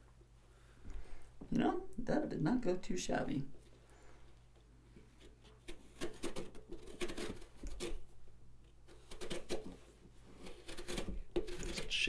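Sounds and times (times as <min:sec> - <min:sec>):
carving tool scraping pumpkin skin: 0:05.2 - 0:08.0, 0:08.9 - 0:12.0.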